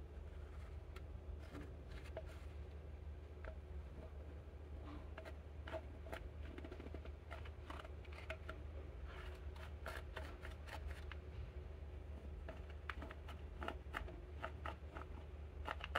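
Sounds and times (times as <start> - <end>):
low steady hum: 0.0 - 15.9
tool scratching powder in plastic: 5.1 - 11.2, 12.2 - 15.9.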